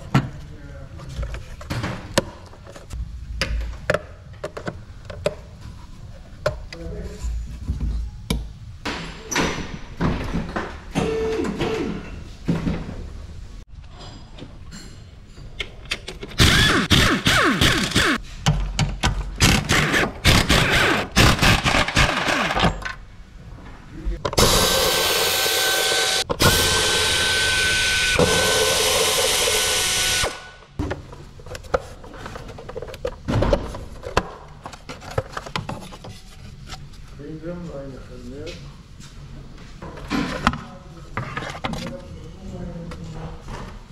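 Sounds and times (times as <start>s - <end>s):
power drill whining: 16.4s - 18.2s, 24.4s - 30.5s.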